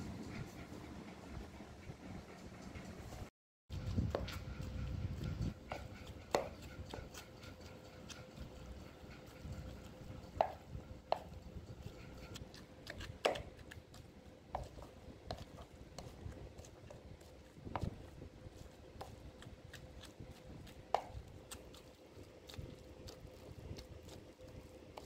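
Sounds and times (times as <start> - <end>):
pestle pounding in mortar: 3.7 - 14.0.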